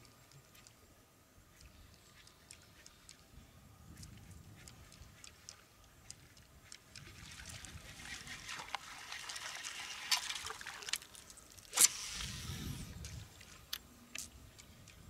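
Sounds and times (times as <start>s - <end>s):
fishing reel whirring: 11.6s - 13.0s.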